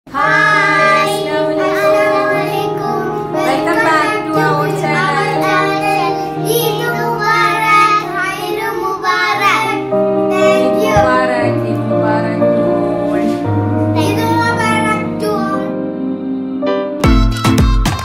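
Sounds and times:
children singing: 0.1 - 11.6
long held instrumental notes: 0.1 - 17.7.

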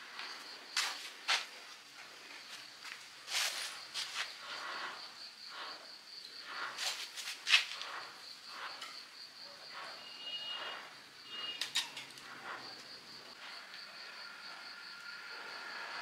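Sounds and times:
crickets chirping: 0.0 - 16.0
scattered clicks and knocks: 6.5 - 13.8.

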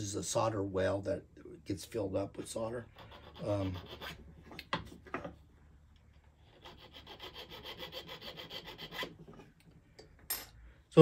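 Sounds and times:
hand file rasping on metal: 2.8 - 4.3, 6.4 - 9.4.

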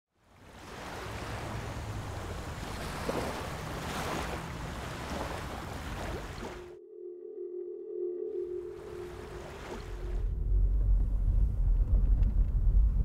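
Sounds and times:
ocean waves and surf: 0.1 - 10.4.

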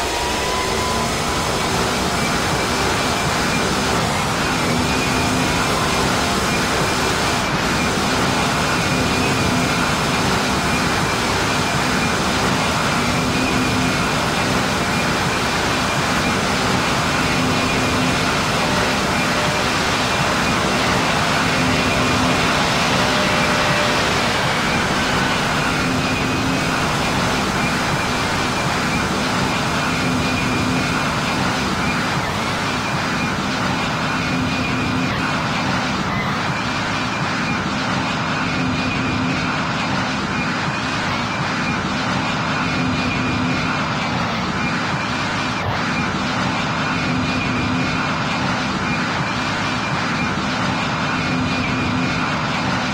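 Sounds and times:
jet engine and airflow noise: 0.0 - 52.9.

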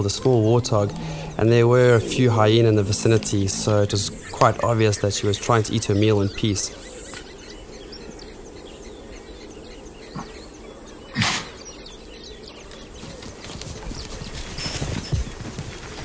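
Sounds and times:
faint chirps: 0.0 - 11.8.

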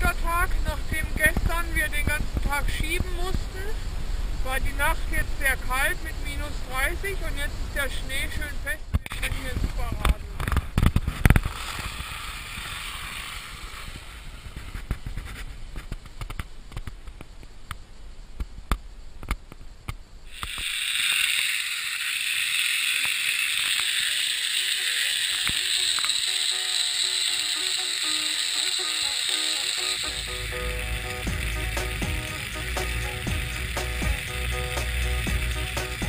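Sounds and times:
bicycle riding over frozen snow: 9.2 - 17.0, 20.3 - 36.0
tyres hissing on snow: 11.0 - 16.0, 20.2 - 36.0.

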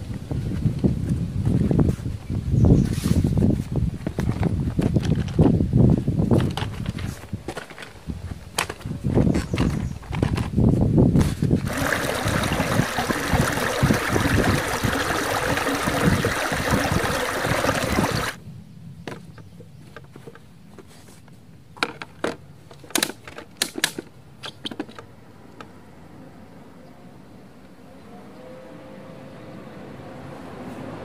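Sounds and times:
stream splashing over rocks: 11.6 - 18.4.

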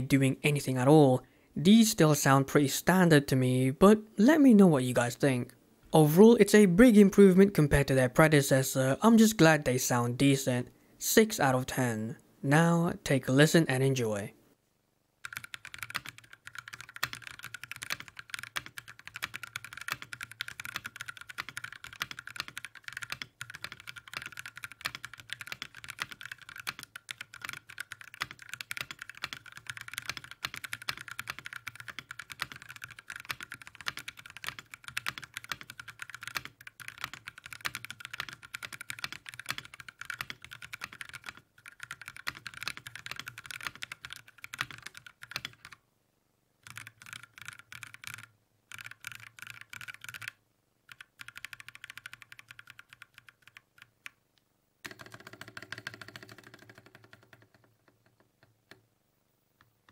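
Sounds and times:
fast mechanical keyboard typing: 15.2 - 45.8, 46.6 - 54.1, 54.8 - 58.0.

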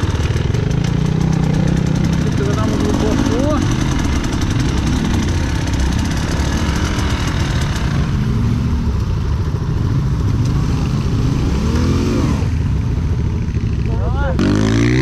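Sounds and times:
motorcycle engine revving: 0.0 - 15.0.

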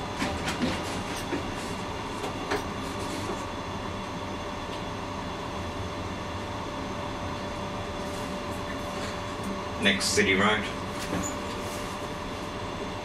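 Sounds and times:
tram rumbling on track: 0.0 - 3.6
tram hum: 0.0 - 13.0.

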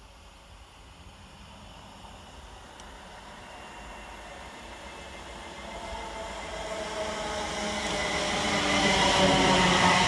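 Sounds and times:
train whine of steady tones: 0.0 - 10.0
train wheels rumbling on rails: 2.3 - 10.0.

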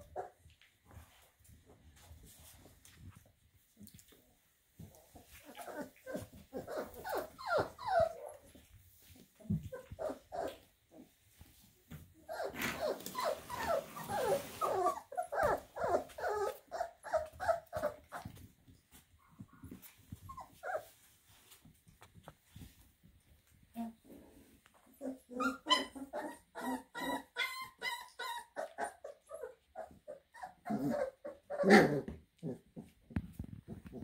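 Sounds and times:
puppies whining and yipping: 5.2 - 10.7, 12.2 - 18.5, 19.6 - 21.1, 24.9 - 32.2.

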